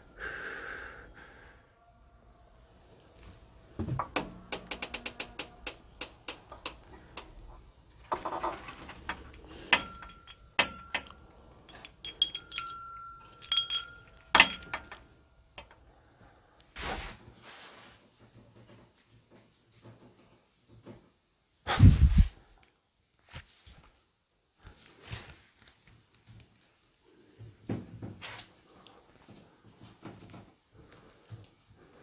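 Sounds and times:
small brass door bell ringing: 0.0 - 1.8, 9.7 - 15.8.

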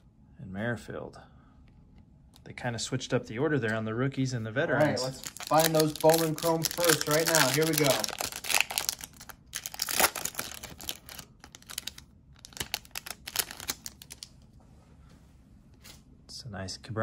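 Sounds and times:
foil wrapper crinkling and tearing: 5.0 - 14.3.

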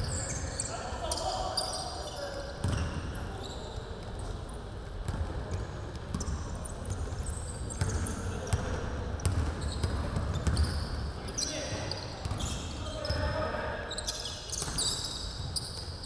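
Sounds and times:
sneakers squeaking on court: 0.0 - 16.0.

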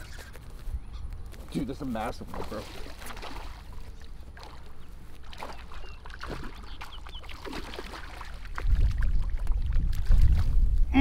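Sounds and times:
fish splashing at water surface: 2.3 - 10.6.

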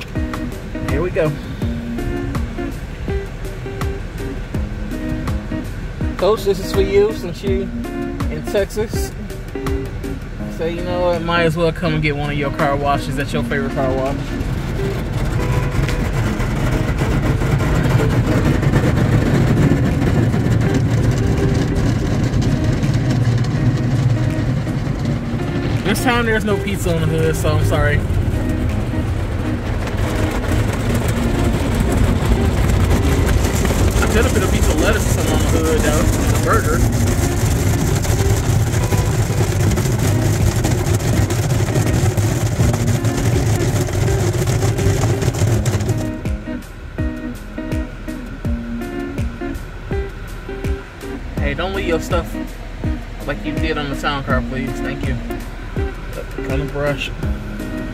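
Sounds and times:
car wash machinery rumble: 0.0 - 57.9
foam spray noise: 13.8 - 46.2
cloth brushes on car: 29.1 - 46.2.

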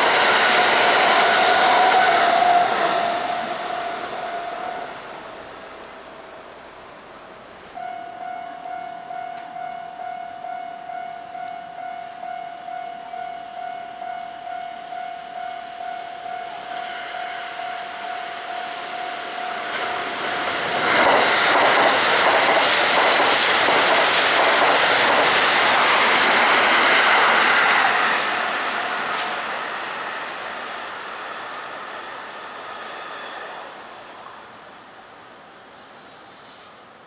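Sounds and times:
trains rushing past: 0.0 - 37.0
level crossing warning bell: 7.8 - 20.2.

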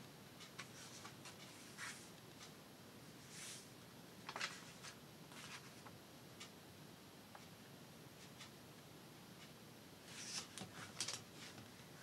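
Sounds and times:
paper pages rustling: 4.3 - 5.8, 10.1 - 11.7.

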